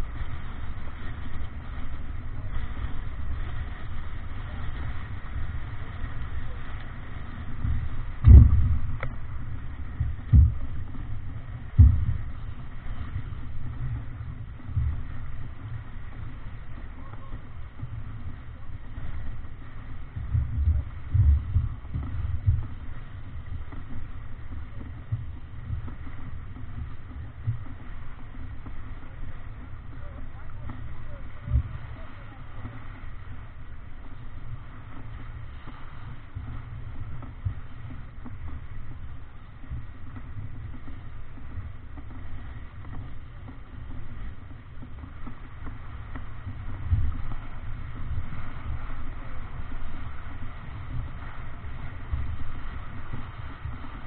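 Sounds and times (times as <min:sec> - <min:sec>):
water rushing along hull: 0:00.0 - 0:54.0
wind buffeting microphone: 0:00.0 - 0:54.0.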